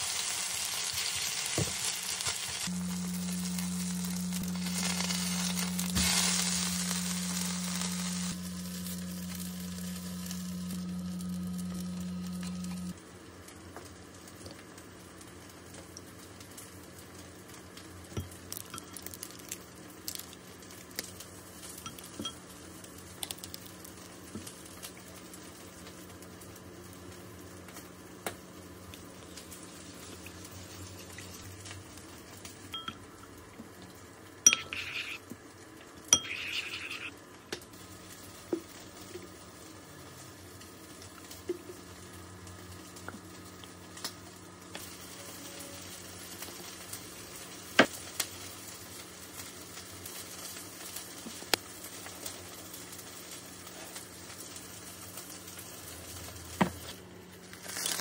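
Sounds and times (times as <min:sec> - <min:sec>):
steady low hum: 0:02.6 - 0:13.0
spoon clinking on ceramic bowl: 0:34.5 - 0:35.2, 0:36.2 - 0:37.1.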